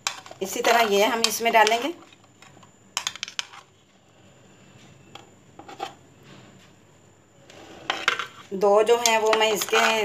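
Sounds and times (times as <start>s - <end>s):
metal spoon scraping bowl: 0.0s - 1.9s, 7.5s - 10.0s.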